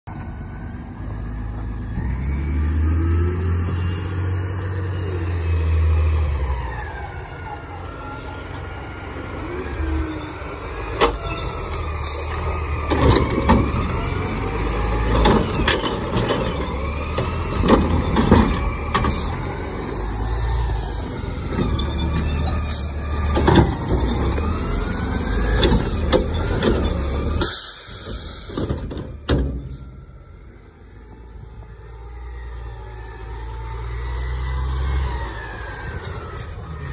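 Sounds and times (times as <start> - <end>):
garbage truck diesel engine revving: 0.1 - 36.9
carts clanking and banging: 10.9 - 19.6, 21.4 - 24.6, 25.4 - 29.9.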